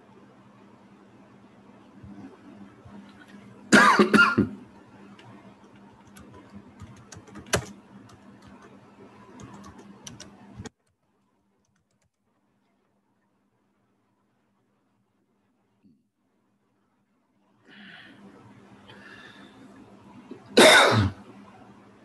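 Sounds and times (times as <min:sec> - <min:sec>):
person coughing: 0:03.7 - 0:04.6, 0:20.6 - 0:21.2
keyboard typing clicks: 0:05.2 - 0:08.8, 0:09.4 - 0:11.0, 0:11.6 - 0:12.2.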